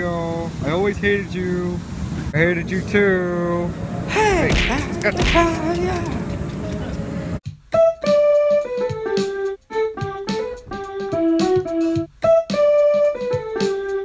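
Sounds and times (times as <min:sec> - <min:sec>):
piano melody: 0:07.8 - 0:14.0.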